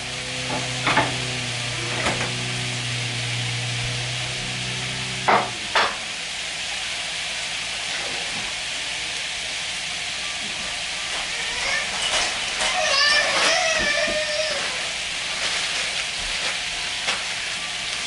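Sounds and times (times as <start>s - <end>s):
low hum: 0.0s - 6.4s
meatballs sizzling in frying pan: 2.7s - 18.0s
knocks on pan: 5.3s - 6.0s.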